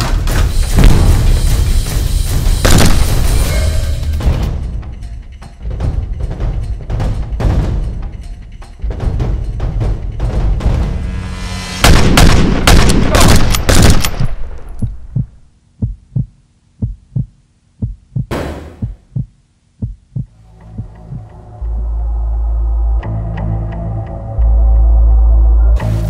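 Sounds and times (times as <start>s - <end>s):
loud sharp bangs: 11.8s - 14.3s, 18.3s - 19.0s
low heartbeat-style thumps: 14.8s - 21.4s
low drone: 20.4s - 26.0s.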